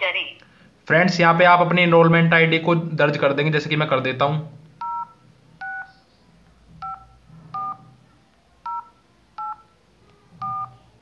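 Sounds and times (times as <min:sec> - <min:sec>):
phone keypad tones: 0:04.8 - 0:06.0, 0:06.8 - 0:08.0, 0:08.6 - 0:10.9.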